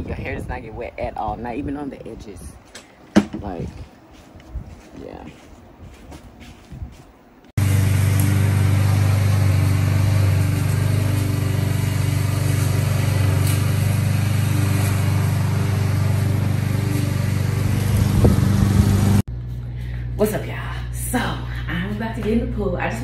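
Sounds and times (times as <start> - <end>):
low motor drone: 7.6 - 20.1.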